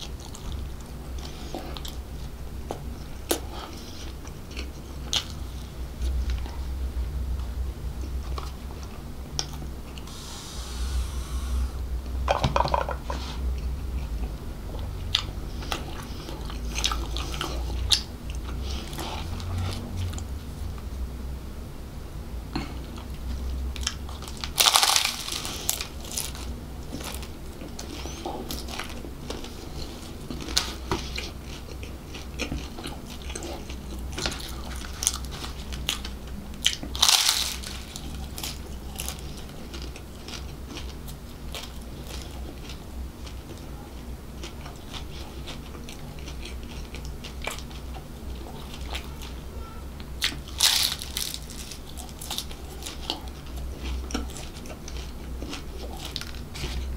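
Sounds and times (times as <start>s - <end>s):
chewing with small crackles: 0.0s - 6.8s, 7.4s - 10.1s, 13.0s - 20.9s, 22.5s - 56.9s
pastry crunching: 22.6s - 49.4s, 50.0s - 56.9s.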